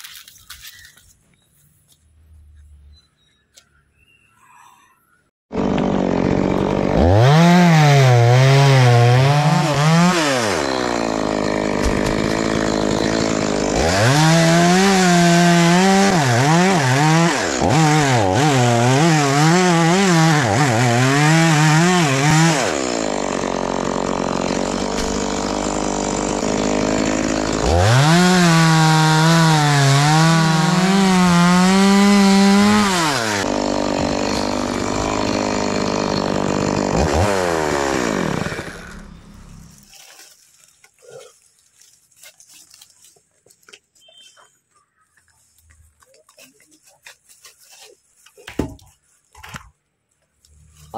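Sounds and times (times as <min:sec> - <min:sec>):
chainsaw sawing wood: 0:05.5 - 0:43.2.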